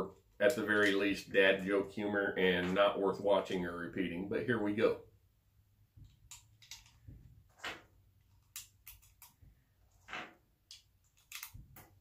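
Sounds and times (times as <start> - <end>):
cartridges clicking into magazine: 10.7 - 11.6.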